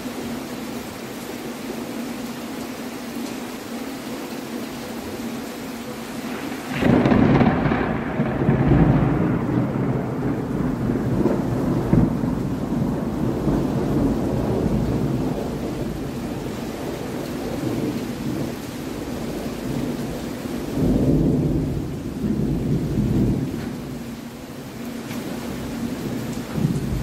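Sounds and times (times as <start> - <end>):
steady rain: 0.0 - 27.0
low thunder rumbling: 6.3 - 24.2, 25.4 - 27.0.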